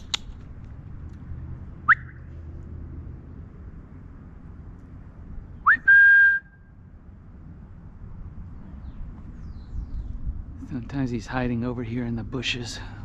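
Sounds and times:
person whistling: 1.9s - 2.2s, 5.6s - 6.6s.

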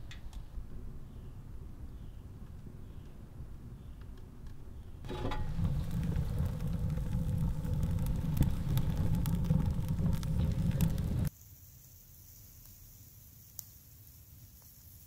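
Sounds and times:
wood stove draft rumble: 2.3s - 11.3s
fire crackling and popping: 4.0s - 11.3s, 11.9s - 15.0s
faint hiss: 5.1s - 15.0s.

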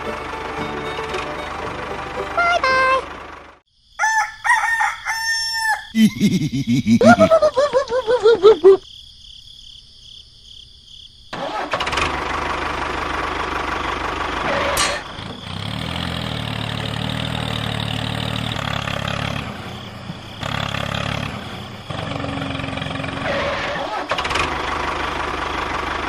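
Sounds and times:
engine running: 0.0s - 3.6s, 11.4s - 26.0s
rooster crowing: 3.9s - 8.6s.

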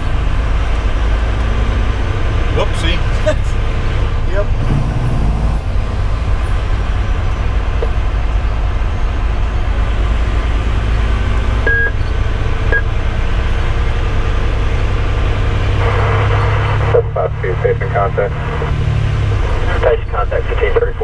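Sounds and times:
diesel truck engine running: 0.0s - 21.0s
short high beeps: 11.7s - 12.0s.

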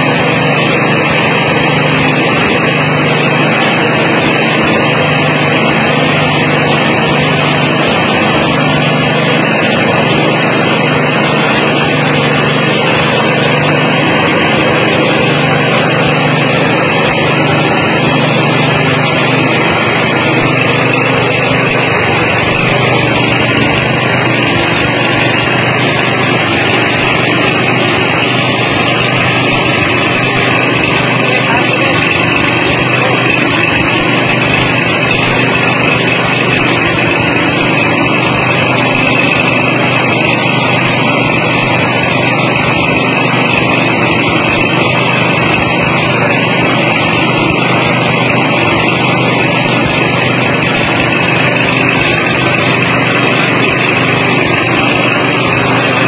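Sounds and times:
rice milling machine droning: 0.0s - 56.0s.

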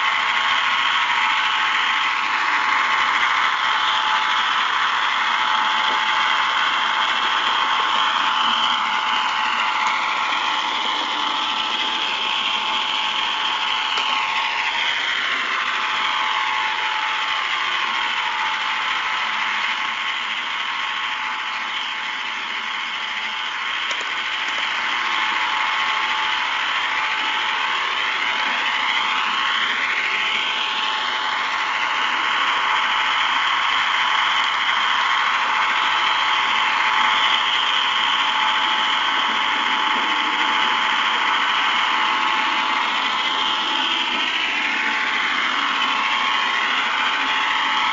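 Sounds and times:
model train motor whining: 0.0s - 47.9s.

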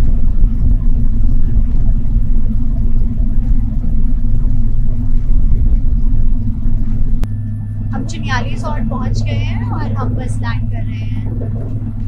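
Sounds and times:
helicopter engine and rotor: 6.3s - 11.4s.

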